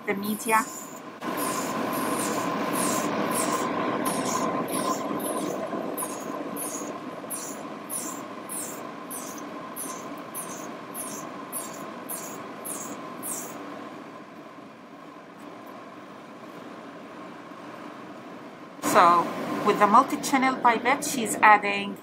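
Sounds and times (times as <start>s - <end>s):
suction hiss: 0.4s - 13.6s
short high slurp: 1.3s - 13.6s.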